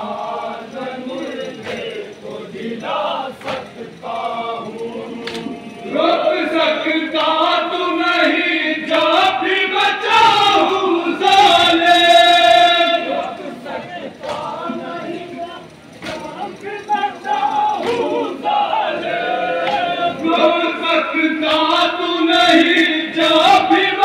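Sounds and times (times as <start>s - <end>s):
crowd singing along: 0.0s - 24.0s
men chanting lament through pa: 0.0s - 24.0s.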